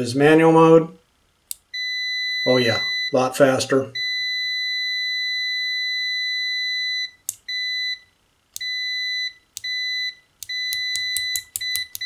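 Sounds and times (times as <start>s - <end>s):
multimeter continuity beeps: 1.7s - 12.0s
metal test tips clicking: 10.4s - 12.0s.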